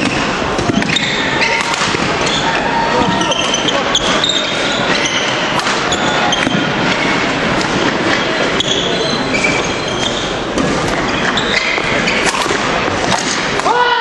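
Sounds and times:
racket hitting shuttlecock: 0.0s - 2.4s, 4.9s - 8.3s, 10.6s - 13.8s
court shoes squeaking: 0.0s - 13.6s
background hubbub: 0.0s - 14.0s.

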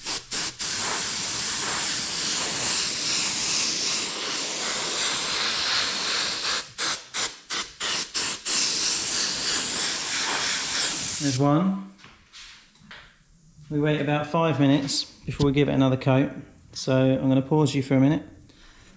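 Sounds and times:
airbrush spraying hiss: 0.0s - 11.4s.

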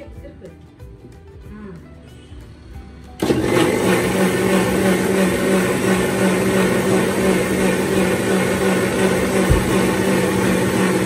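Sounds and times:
kitchen mixer motor humming: 3.1s - 11.0s.

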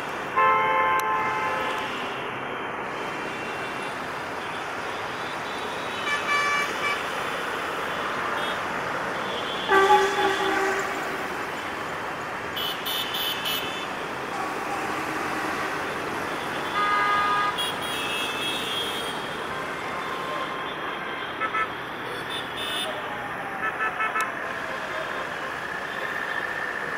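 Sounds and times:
road traffic noise: 0.0s - 26.9s
vehicle horn toots: 9.4s - 11.1s, 16.6s - 19.1s.

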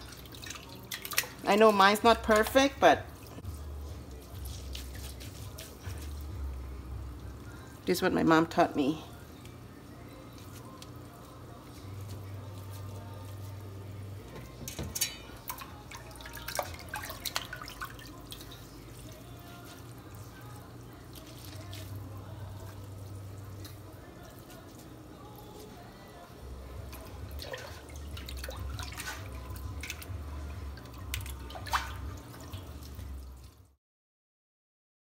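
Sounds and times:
water splashes and drips: 0.0s - 3.5s, 4.1s - 6.5s, 15.0s - 19.8s, 26.8s - 33.8s.

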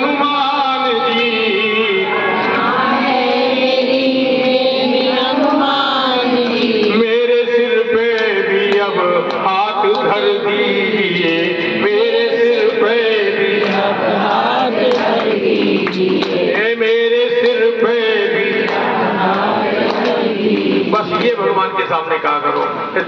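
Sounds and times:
man singing into a microphone: 0.0s - 2.6s, 4.8s - 15.1s, 16.4s - 19.4s.

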